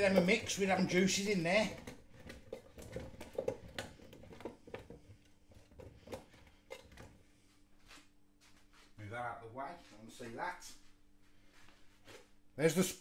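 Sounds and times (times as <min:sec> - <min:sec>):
potato chunks tumbling in basket: 0:00.0 - 0:07.1.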